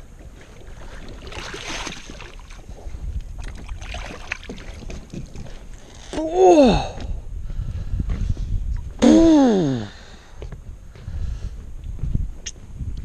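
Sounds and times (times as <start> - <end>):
wind buffeting microphone: 0.0 - 13.0
fish thrashing water splashing: 0.6 - 2.7, 3.4 - 5.6.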